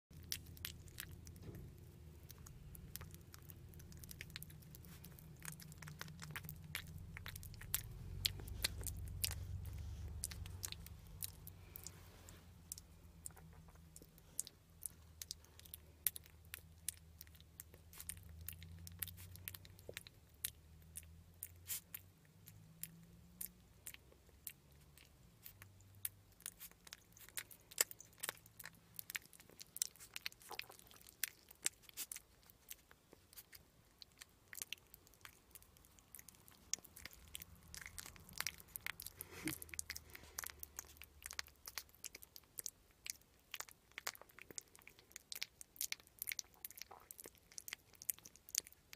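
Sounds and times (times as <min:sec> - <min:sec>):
animal chewing wetly: 0:00.1 - 0:48.9.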